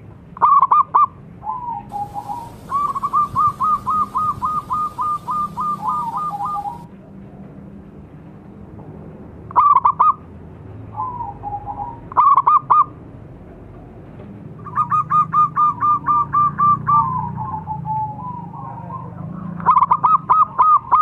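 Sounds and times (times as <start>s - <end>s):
doves cooing: 1.9s - 6.9s.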